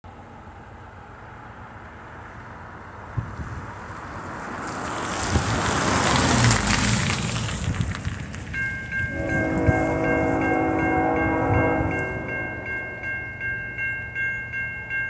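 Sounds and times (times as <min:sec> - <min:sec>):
van driving past: 0:02.2 - 0:08.5
wind on microphone: 0:03.1 - 0:03.9, 0:07.4 - 0:12.3.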